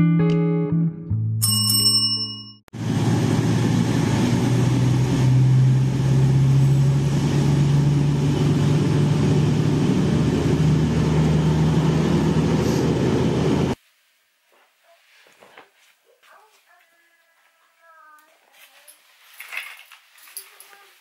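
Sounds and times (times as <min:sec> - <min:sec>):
diesel train engines droning: 0:02.8 - 0:13.8.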